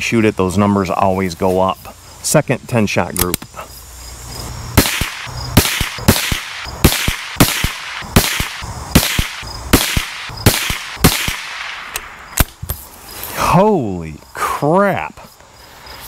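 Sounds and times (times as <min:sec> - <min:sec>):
rifle shots: 0:04.8 - 0:12.6.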